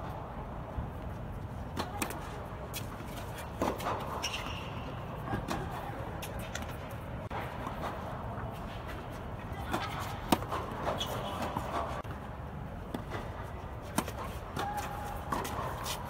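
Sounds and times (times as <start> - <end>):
shoe squeak on court: 3.8 - 5.0, 10.8 - 11.8.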